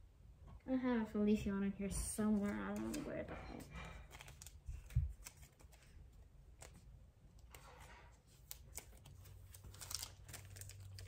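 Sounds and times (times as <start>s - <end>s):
cards clicking and rustling: 2.4s - 3.3s, 3.9s - 11.0s.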